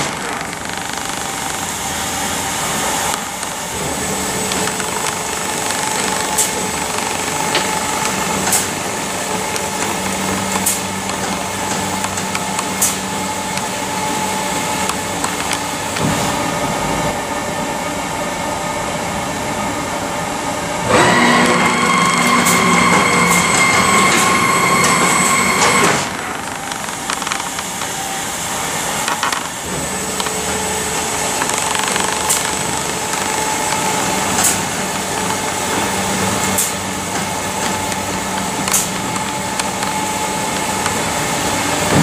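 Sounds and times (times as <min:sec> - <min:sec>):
sharp ticks: 0:00.0 - 0:13.9, 0:14.7 - 0:15.7, 0:26.2 - 0:28.0, 0:29.0 - 0:35.7, 0:36.4 - 0:41.1
laser cutter humming and hissing: 0:00.7 - 0:16.9, 0:17.6 - 0:42.0.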